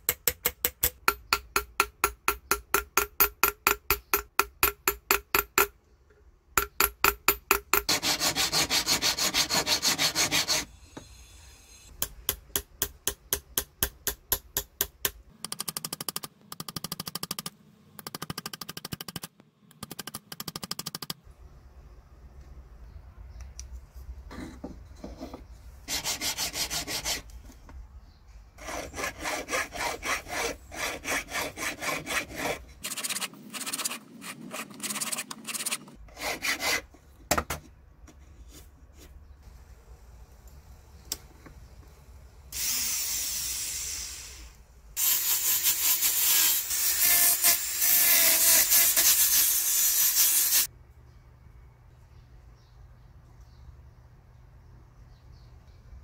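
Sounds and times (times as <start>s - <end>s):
hand file rasping on metal: 7.7s - 10.7s, 25.9s - 27.2s, 28.6s - 36.9s.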